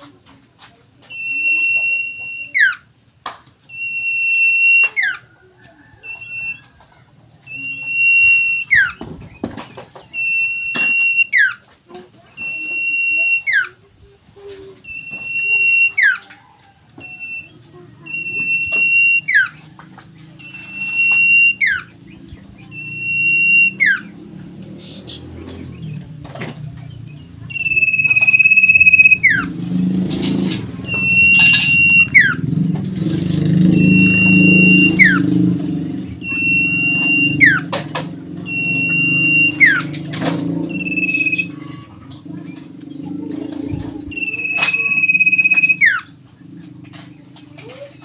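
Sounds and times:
bird whistling call: 7.5s - 9.0s, 10.1s - 11.6s, 12.4s - 13.8s, 20.4s - 21.9s, 22.6s - 24.2s, 27.5s - 29.5s, 30.8s - 32.4s, 33.8s - 35.4s, 36.2s - 37.7s, 38.5s - 40.0s, 40.6s - 41.9s, 44.1s - 46.1s.

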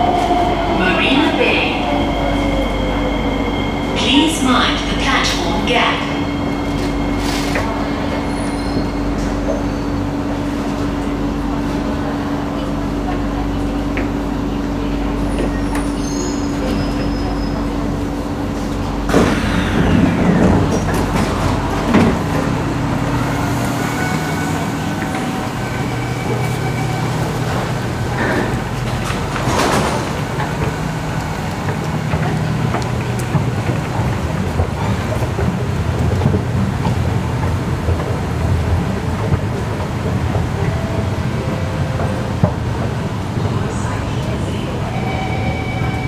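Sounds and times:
train interior hum: 0.0s - 46.0s
train doors sliding open: 15.2s - 46.0s.

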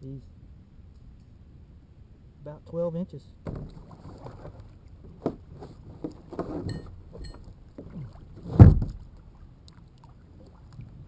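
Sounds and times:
loud thump: 3.4s - 3.8s, 8.5s - 9.0s
light knocks and clunks: 3.4s - 9.1s.

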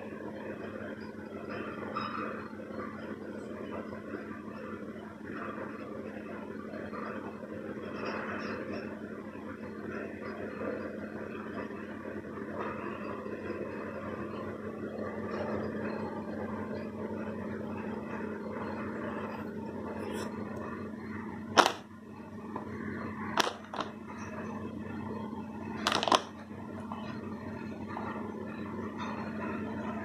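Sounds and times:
background hum and hiss: 0.0s - 30.0s
handling clicks and crackles: 21.6s - 21.9s, 23.4s - 24.0s, 25.8s - 26.4s.

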